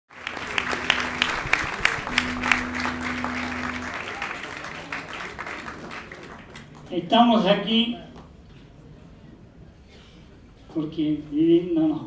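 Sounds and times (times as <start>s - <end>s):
steady low tone: 0.1s - 5.4s
audience applause: 0.1s - 6.9s.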